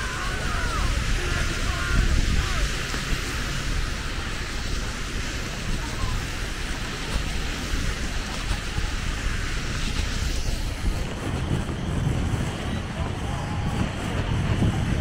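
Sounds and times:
seaside ambience hiss: 0.0 - 14.6
wind buffeting microphone: 0.0 - 15.0.

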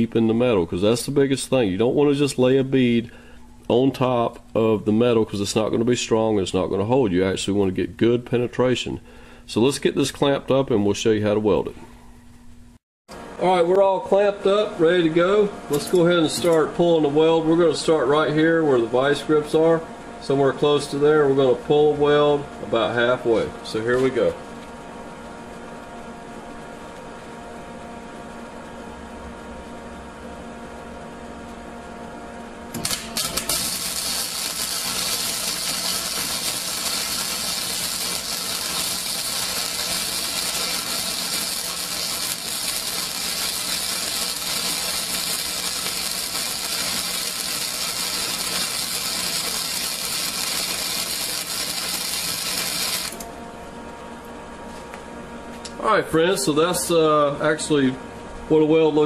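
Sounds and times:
welder low hum: 13.1 - 59.0
welding arc crackling: 32.7 - 53.3.

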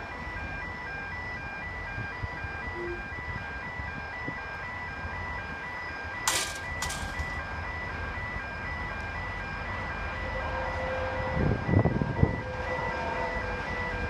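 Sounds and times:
electronic warning bell ringing: 1.8 - 8.7.

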